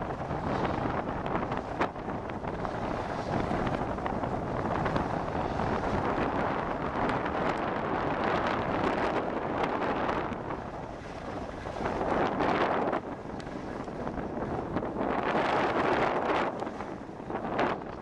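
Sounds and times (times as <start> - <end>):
wind on microphone: 0.0 - 18.0
skis scraping over snow: 2.4 - 9.0.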